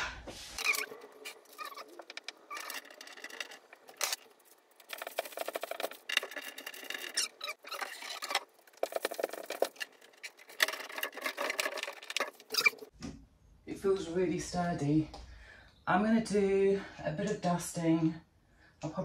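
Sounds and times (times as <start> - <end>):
pegboard scratching and rubbing: 0.4 - 12.9.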